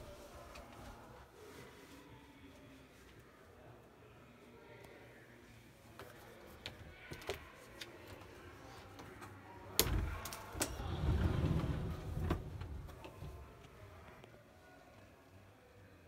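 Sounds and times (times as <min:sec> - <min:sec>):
door moving rumble: 0:09.8 - 0:13.7.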